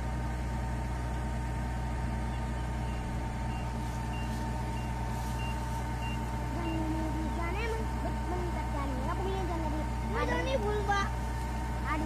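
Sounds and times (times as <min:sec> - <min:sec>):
combine harvester engine drone: 0:00.0 - 0:12.0
steady machine whine: 0:00.0 - 0:12.0
faint short beeps: 0:02.8 - 0:06.9.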